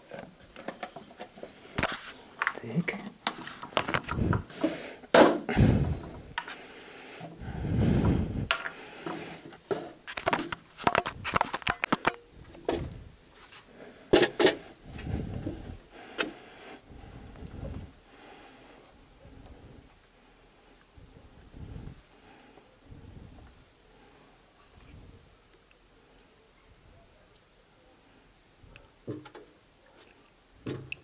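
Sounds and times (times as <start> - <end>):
clicks and scrapes of metal can: 8.5 - 12.9.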